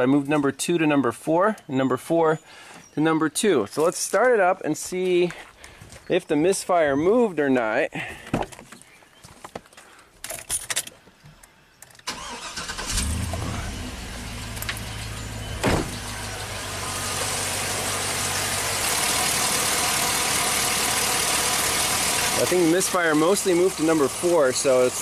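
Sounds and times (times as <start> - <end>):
engine cranking and starting: 12.0 - 16.4
engine idling with misfire: 12.1 - 25.0.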